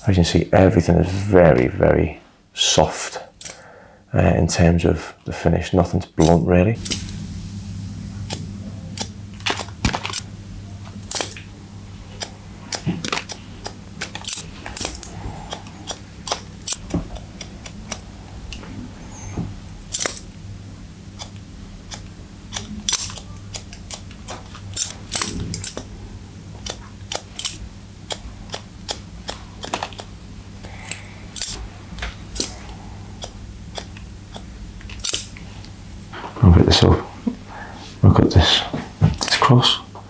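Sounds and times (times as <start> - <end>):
faint steady low hum: 0.0 - 40.0
scissors snipping hair: 21.2 - 25.9, 26.6 - 31.6, 32.4 - 35.3.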